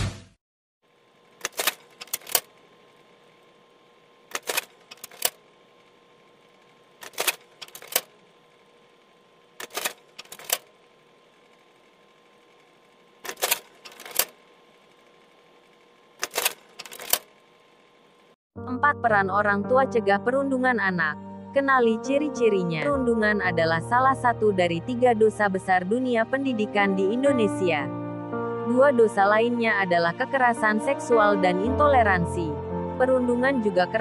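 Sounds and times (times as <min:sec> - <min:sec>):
typewriter clacking: 0:01.4 - 0:02.5, 0:04.3 - 0:05.4, 0:07.0 - 0:08.1, 0:09.6 - 0:10.7, 0:13.2 - 0:14.4, 0:16.2 - 0:17.3.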